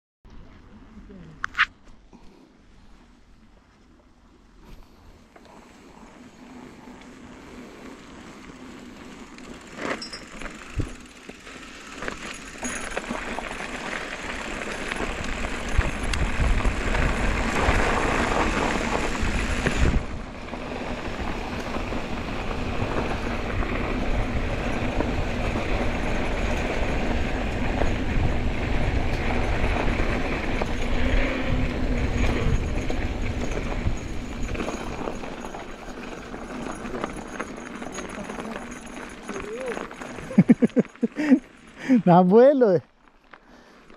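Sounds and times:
bike tyres rolling on gravel: 4.7 - 43.9
wind buffeting microphone: 14.8 - 36.6.

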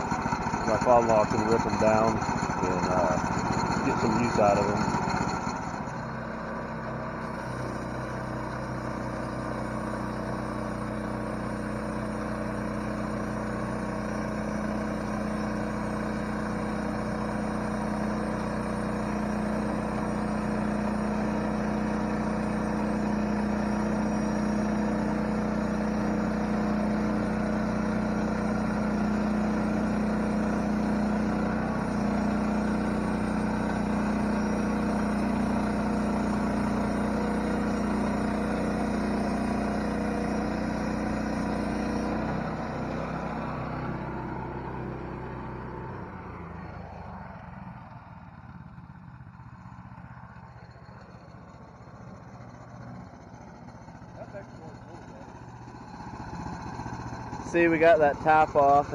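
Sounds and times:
band saw cutting log: 0.0 - 46.0, 52.8 - 58.9
small engine running: 0.0 - 58.9.

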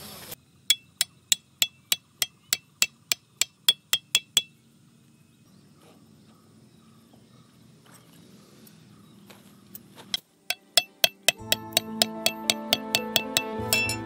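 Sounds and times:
hammer striking metal tent peg: 0.7 - 4.5, 10.5 - 14.0.

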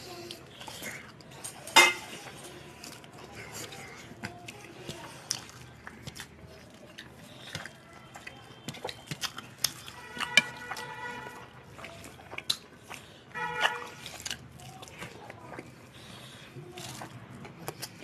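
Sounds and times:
wet squishing and chewing: 0.0 - 18.0
fingers mixing rice on metal plates: 1.1 - 18.0
clinks against metal plates: 1.8 - 2.0.

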